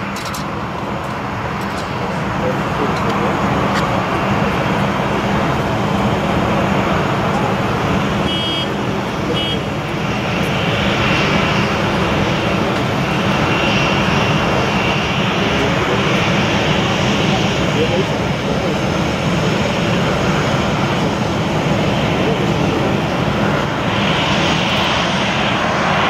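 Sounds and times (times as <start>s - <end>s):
jet engines rushing: 0.0s - 26.0s
faint high whine: 8.2s - 9.8s.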